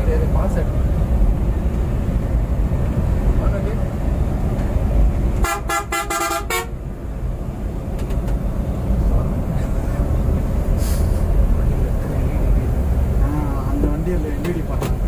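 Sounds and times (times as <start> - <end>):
coach engine rumble: 0.0 - 15.0
road noise: 0.0 - 15.0
vehicle horn toots: 5.4 - 6.8.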